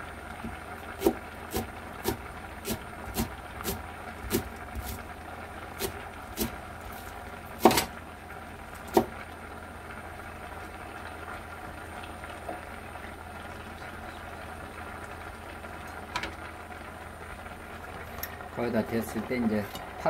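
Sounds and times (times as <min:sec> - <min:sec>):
stew bubbling in a pot: 0:00.0 - 0:20.0.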